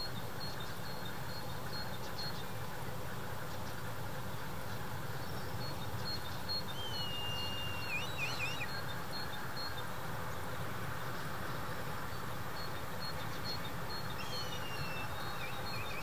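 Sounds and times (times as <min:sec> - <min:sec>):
bird whistling call: 0:06.6 - 0:08.8, 0:13.5 - 0:16.0.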